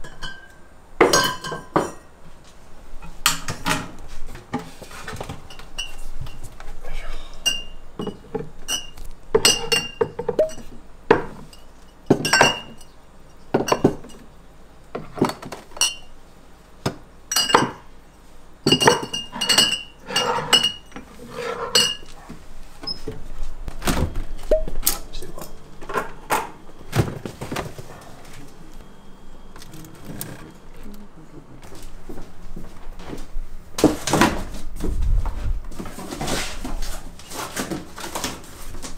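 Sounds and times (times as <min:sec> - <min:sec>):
glassware clinking: 0:00.0 - 0:02.1, 0:05.5 - 0:06.4, 0:07.4 - 0:14.3, 0:15.8 - 0:16.1, 0:17.3 - 0:17.9, 0:18.6 - 0:22.1.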